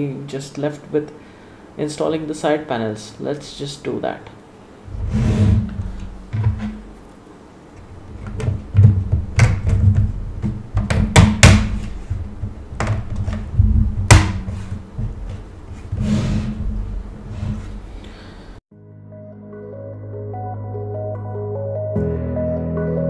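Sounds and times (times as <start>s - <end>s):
low handling rumble: 4.9s - 7.2s, 11.7s - 18.1s.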